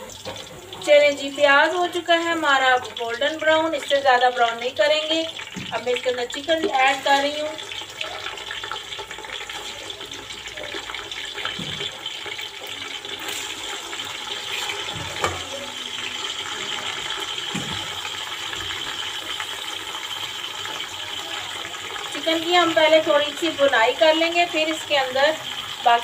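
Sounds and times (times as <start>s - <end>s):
chicken sizzling in hot oil: 0.0s - 26.0s
spoon knocking and scraping pot: 11.4s - 12.0s, 14.5s - 15.6s.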